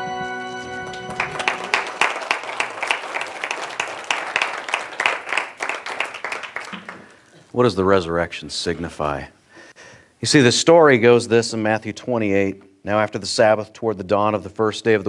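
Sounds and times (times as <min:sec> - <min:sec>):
congregation applauding: 0:00.0 - 0:07.3.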